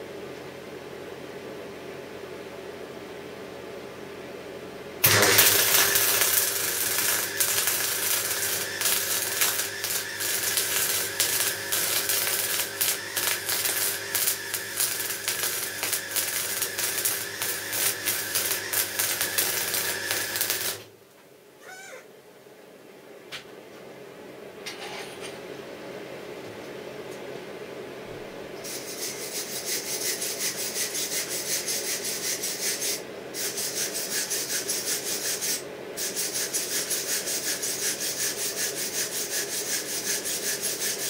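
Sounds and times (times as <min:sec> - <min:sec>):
welding arc crackling hiss: 0:05.0 - 0:20.9, 0:28.6 - 0:41.0.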